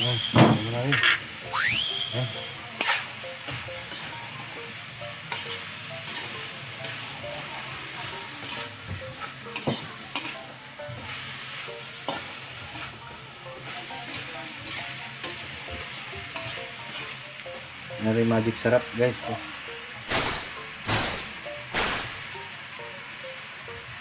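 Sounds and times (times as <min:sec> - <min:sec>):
vegetables sizzling in wok: 0:00.0 - 0:24.0
spatula scraping and knocking pan: 0:08.4 - 0:10.4.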